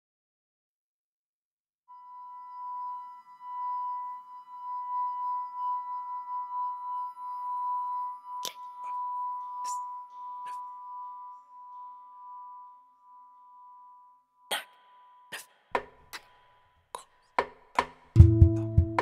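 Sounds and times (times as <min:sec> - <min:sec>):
bell-like ringing tone: 0:01.9 - 0:15.3.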